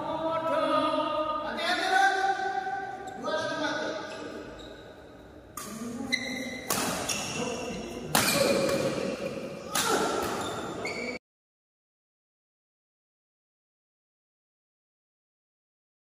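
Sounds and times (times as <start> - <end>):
rackets hitting shuttlecock: 5.5 - 10.8.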